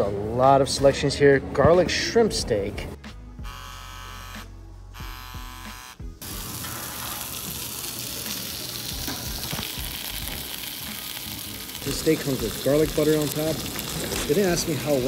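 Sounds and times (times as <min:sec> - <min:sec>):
steak sizzling on skillet: 0:06.1 - 0:15.0.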